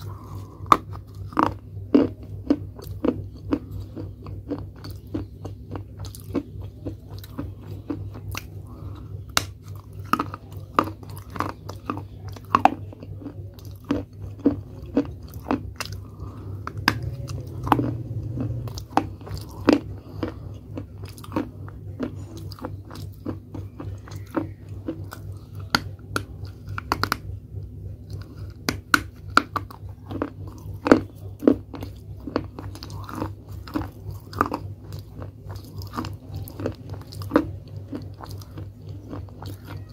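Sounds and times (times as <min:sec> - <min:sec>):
clay pieces crunching in mouth: 0:00.0 - 0:27.2, 0:28.0 - 0:39.9
low steady hum: 0:00.0 - 0:39.9.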